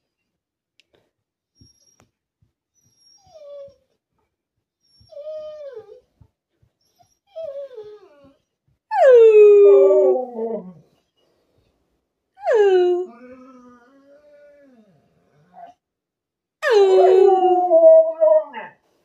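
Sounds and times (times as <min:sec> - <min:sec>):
dog whining: 0:02.8 - 0:04.0, 0:04.8 - 0:06.1, 0:06.8 - 0:10.9, 0:12.4 - 0:15.8, 0:16.6 - 0:18.8
dog howling: 0:08.9 - 0:10.8, 0:16.6 - 0:18.8.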